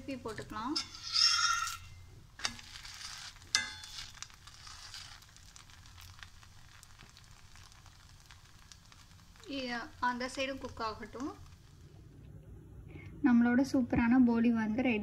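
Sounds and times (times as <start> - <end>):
flatbread sizzling: 0.0 - 12.1
metal spatula clicking on griddle: 2.4 - 5.2.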